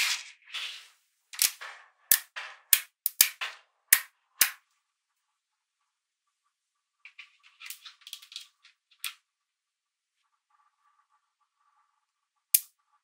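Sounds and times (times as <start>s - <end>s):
magnetic balls snapping together: 1.4s - 4.6s.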